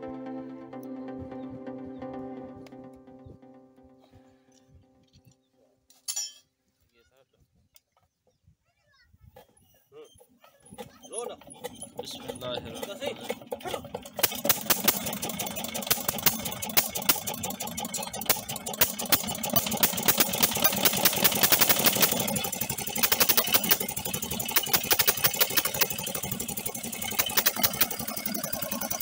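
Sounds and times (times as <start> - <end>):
diesel engine running: 10.7 - 29.0.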